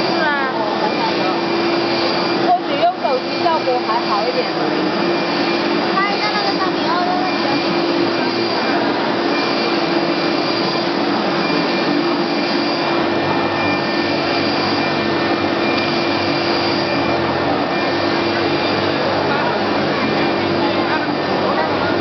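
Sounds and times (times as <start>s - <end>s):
faint high whine: 0.0s - 22.0s
printer machine whir: 0.0s - 22.0s.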